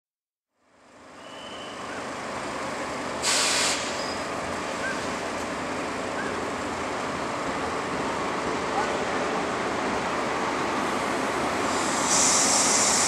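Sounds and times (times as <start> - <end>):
compressed air hiss: 3.2 - 4.1, 11.6 - 13.0.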